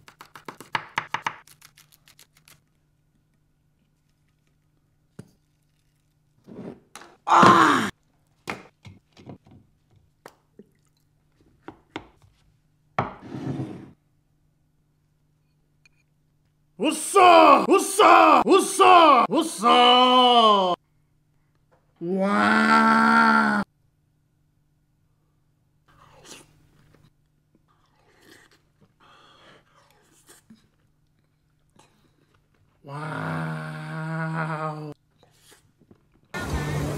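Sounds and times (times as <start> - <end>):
person shouting: 7.3 - 7.9, 16.8 - 20.8, 22.0 - 23.6
glass dish scraping on wood: 13.1 - 14.0.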